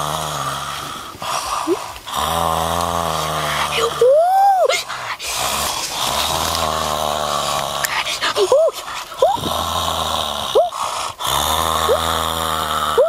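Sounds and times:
boy droning throat sounds: 0.0 - 13.0
boy vocal whoop: 4.0 - 4.9.

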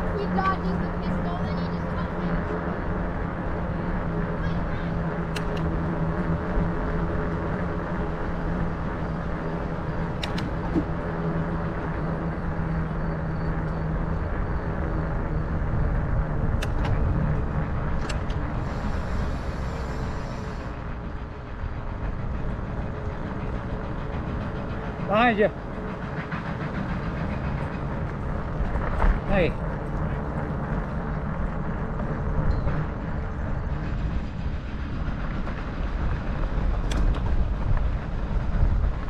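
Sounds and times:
bike tyres rolling on pavement: 0.0 - 39.0
low hum: 0.0 - 39.0
sharp clicks: 5.2 - 5.7, 10.2 - 10.8, 16.5 - 17.0, 18.0 - 18.4, 36.8 - 37.3.

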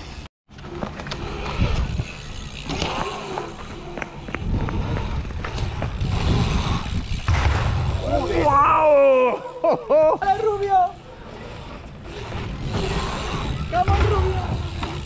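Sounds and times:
bike tyres rolling on asphalt: 0.0 - 15.0
bike clicks and knocks: 0.5 - 8.2, 11.6 - 15.0
wind rushing over microphone: 1.4 - 8.6.

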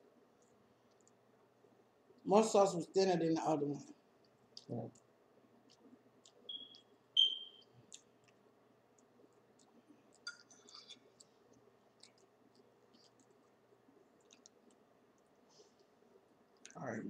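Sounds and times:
eating sounds: 4.2 - 6.5, 7.8 - 15.9.

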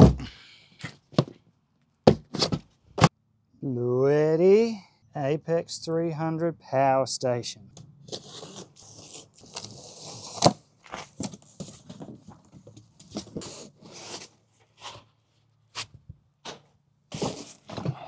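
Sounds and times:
box cutter slitting packing tape: 2.2 - 2.6, 8.1 - 10.6
cardboard and paper rustling: 8.1 - 15.2, 15.8 - 18.0.

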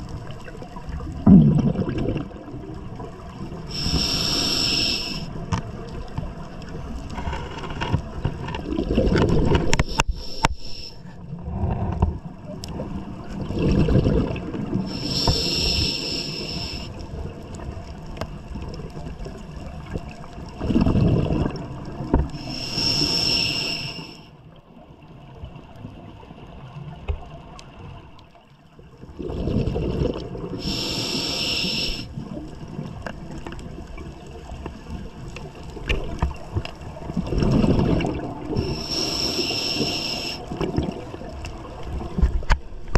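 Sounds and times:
exhale bubbles rumbling: 0.0 - 5.9, 8.1 - 17.9, 18.5 - 24.2, 29.0 - 42.9
regulator inhale hiss: 3.6 - 5.4, 9.7 - 11.2, 14.8 - 17.0, 22.2 - 24.4, 30.5 - 32.2, 38.5 - 40.6.

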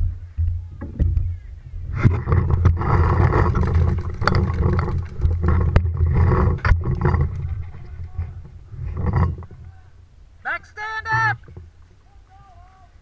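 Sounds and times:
rumbling handling noise: 0.0 - 9.9
wind rush on microphone: 0.6 - 9.7.

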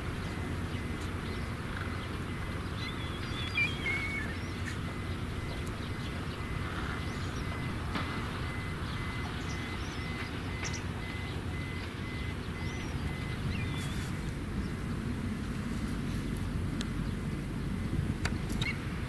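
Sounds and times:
low rumble of traffic: 0.0 - 19.0
reversing beeper: 2.3 - 14.1
faint bird chirps: 2.7 - 7.8, 18.5 - 18.8.

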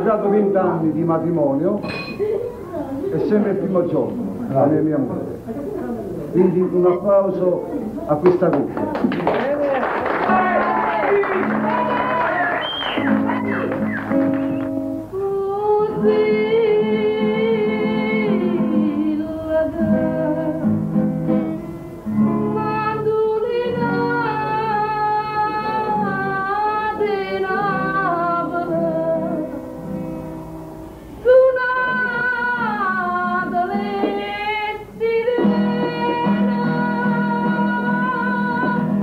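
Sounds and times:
plucked guitar: 12.9 - 39.0
person singing: 15.1 - 20.8, 22.5 - 29.7, 31.2 - 39.0.

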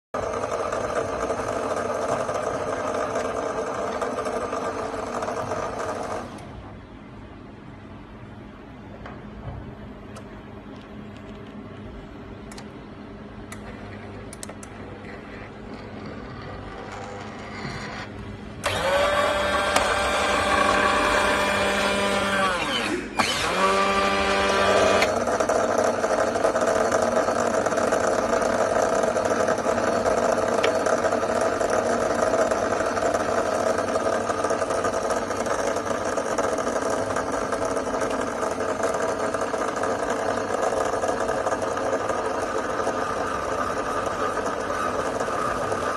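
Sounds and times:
machine whirring hum: 0.2 - 45.9
electric motor whining: 18.6 - 25.3.

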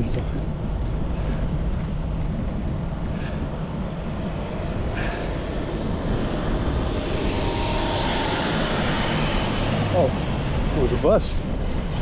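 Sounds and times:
road rumble: 0.0 - 12.0
wind: 0.0 - 12.0
bus engine overtaking: 4.1 - 11.0
short high tones: 4.7 - 5.6.

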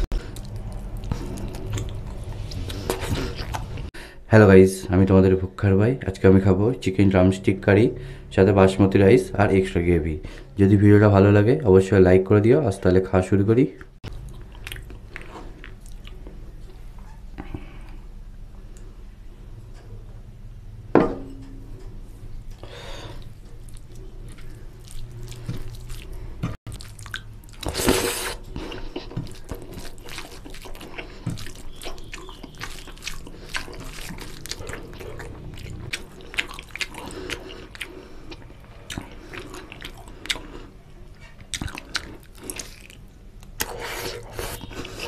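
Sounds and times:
chewing: 0.0 - 3.9, 14.1 - 17.6, 22.5 - 45.0
fingers squishing rice in gravy: 26.7 - 35.3.

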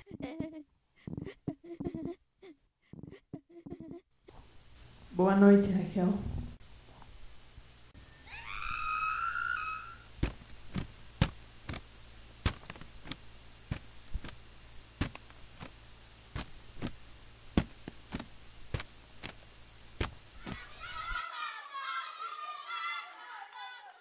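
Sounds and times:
faint steady hum: 0.0 - 21.9
footsteps walking: 10.0 - 21.2.

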